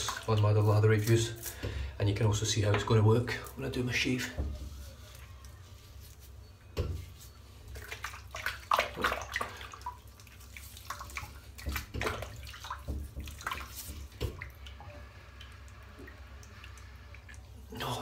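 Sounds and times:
water splashing at a sink: 0:00.0 - 0:01.8, 0:06.8 - 0:18.0.

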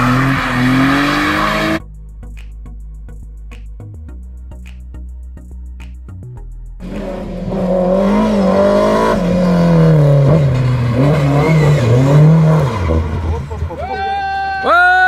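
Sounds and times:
car engine at high revs: 0:00.0 - 0:01.8, 0:06.8 - 0:13.7
light background music: 0:01.4 - 0:07.0.

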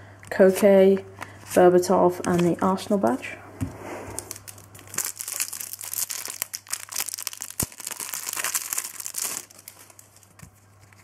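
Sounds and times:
foil packet crinkling: 0:04.2 - 0:11.0.

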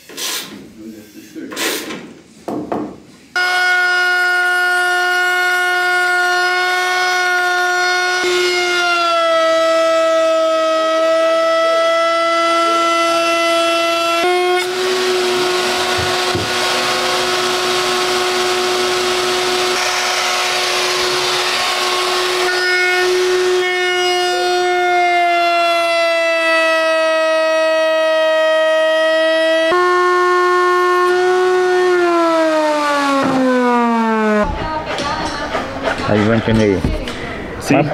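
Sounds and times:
wood router whining: 0:03.4 - 0:34.6
router cutting wood hiss: 0:12.7 - 0:25.7.

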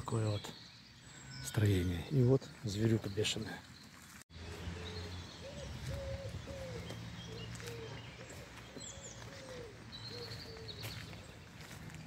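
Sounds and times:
songbirds chirping faintly: 0:00.0 - 0:12.0
pigeon cooing: 0:04.8 - 0:10.8.

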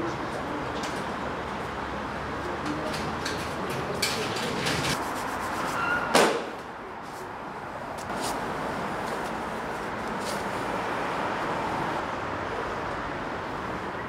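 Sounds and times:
urban background hum: 0:00.0 - 0:14.0
shoe squeak: 0:05.6 - 0:06.3.

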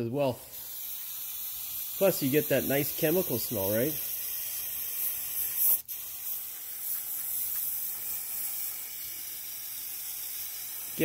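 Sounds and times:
aerosol can spraying: 0:00.3 - 0:11.0.

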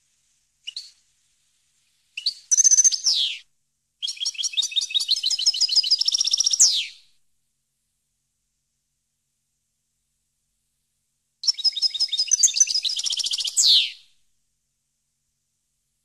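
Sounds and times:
goldfinch singing: 0:04.0 - 0:06.9, 0:11.4 - 0:14.0.

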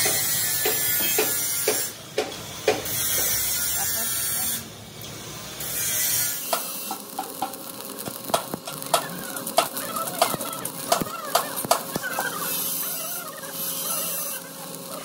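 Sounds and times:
welding arc sizzling and popping: 0:00.0 - 0:15.0.

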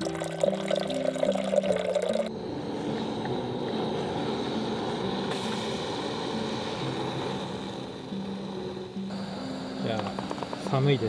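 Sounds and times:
water pouring into kettle: 0:00.0 - 0:02.3
gas stove burner hissing: 0:02.4 - 0:11.0.

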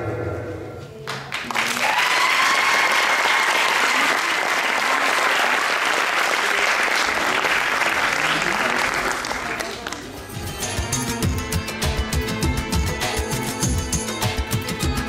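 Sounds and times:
audience clapping and cheering: 0:01.0 - 0:10.4
long high cheer: 0:01.5 - 0:09.7
dance music: 0:10.2 - 0:15.0.

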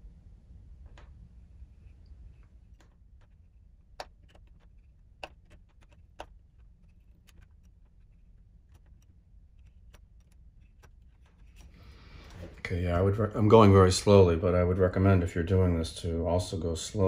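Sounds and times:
faint low hum: 0:00.0 - 0:17.0
plastic clicks and cracks: 0:02.3 - 0:11.8.

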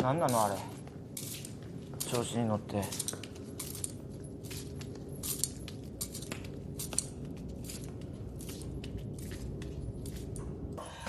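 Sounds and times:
low steady hum: 0:00.0 - 0:11.0
chains clinking and jingling: 0:02.8 - 0:10.5.

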